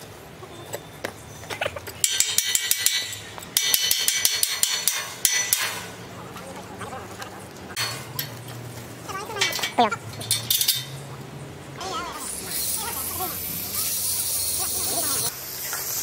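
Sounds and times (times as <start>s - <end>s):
metal strikes with ringing: 2.0s - 6.0s.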